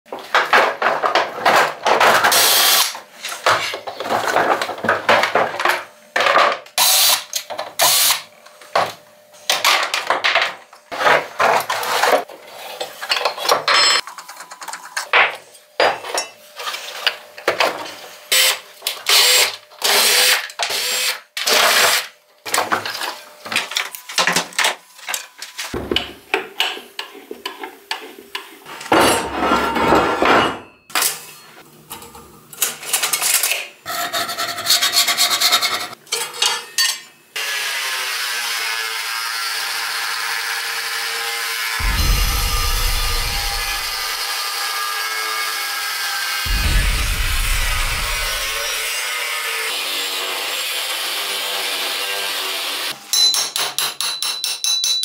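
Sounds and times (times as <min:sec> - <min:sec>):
power tools working steel: 0:02.3 - 0:02.9, 0:18.3 - 0:22.1, 0:37.4 - 0:53.1
metal parts clanking: 0:13.1 - 0:15.2.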